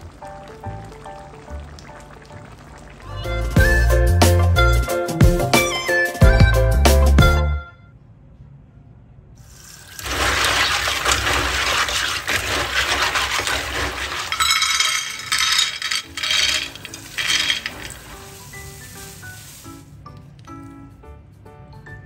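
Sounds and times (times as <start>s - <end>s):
tap water splashing into basin: 9.9s - 14.4s
clam shells clinking: 11.9s - 18.2s.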